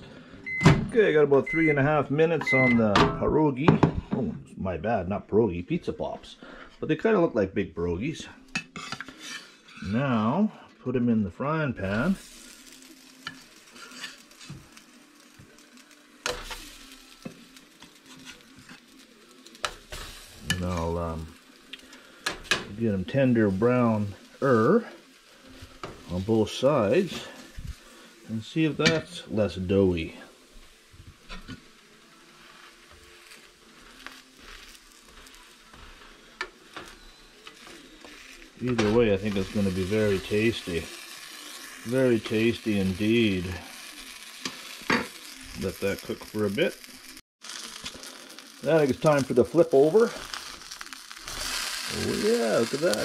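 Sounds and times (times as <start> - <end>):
food sizzling in oil: 8.4 - 10.6, 11.8 - 53.0
spatula scraping a pan: 8.5 - 10.0, 12.2 - 14.8, 16.2 - 21.0, 31.2 - 42.8.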